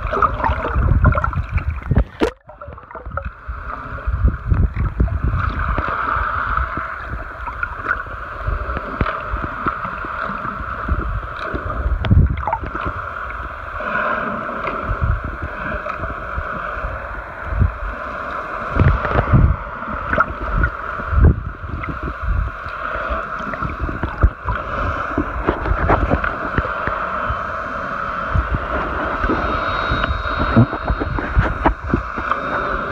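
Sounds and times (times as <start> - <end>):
underwater rushing hiss: 12.7 - 32.9
low thumps and splashy knocks: 23.6 - 26.7.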